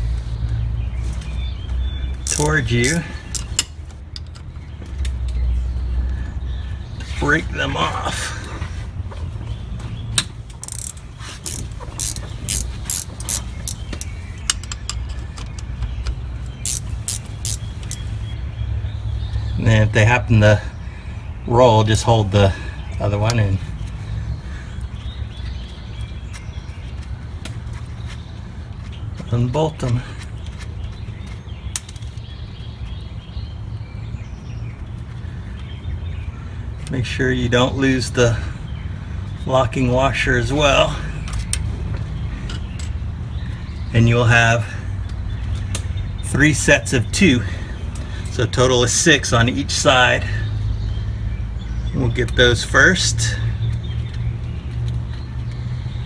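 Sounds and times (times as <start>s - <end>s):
ratcheting wrench clicking: 2.2s - 4.4s, 10.6s - 15.6s, 16.6s - 18.0s.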